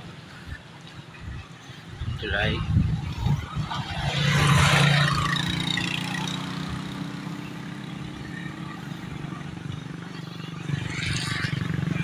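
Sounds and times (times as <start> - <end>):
vehicle passing on wet road: 3.1 - 6.9.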